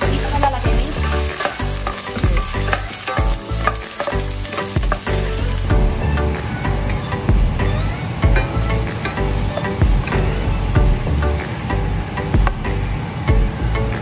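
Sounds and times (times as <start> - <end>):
onion and garlic sizzling in oil: 0.0 - 14.0
spatula scraping and tapping pan: 0.8 - 5.2.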